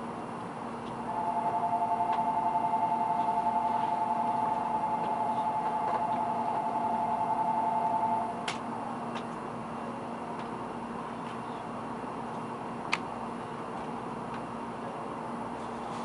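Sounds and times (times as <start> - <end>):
two-tone electronic bell trill: 1.1 - 8.4.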